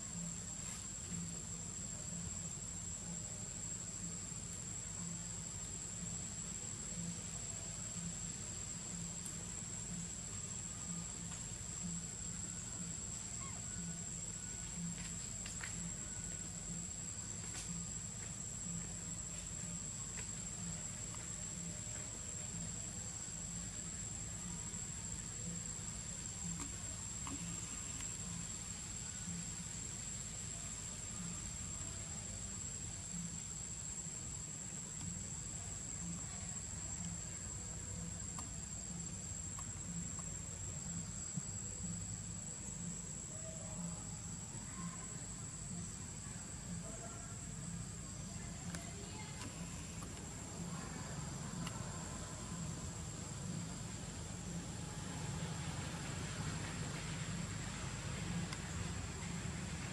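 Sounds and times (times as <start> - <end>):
insects droning: 0.0 - 59.9
faint ticks: 26.5 - 28.2, 38.1 - 40.5, 48.4 - 52.2.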